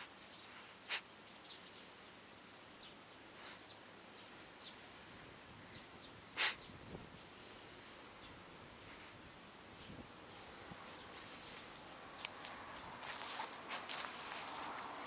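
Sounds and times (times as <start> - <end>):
dog sniffing in dry grass: 0.0 - 1.1, 3.3 - 3.7, 6.4 - 6.6, 8.8 - 9.2
faint ticks of grass stalks: 0.0 - 15.0
steady outdoor hiss: 0.0 - 15.0.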